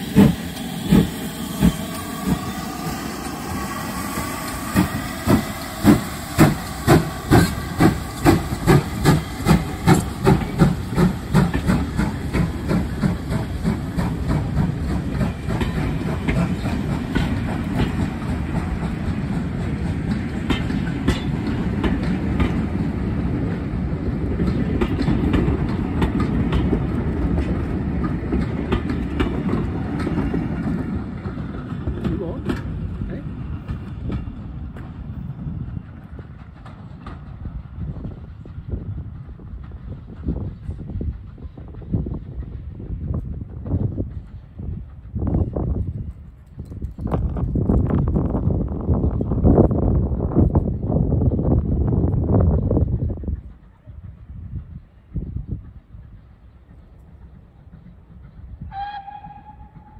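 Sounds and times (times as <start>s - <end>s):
steam locomotive exhaust chuffs: 0.0s - 59.9s
train coaches clattering over rail joints: 4.6s - 22.9s.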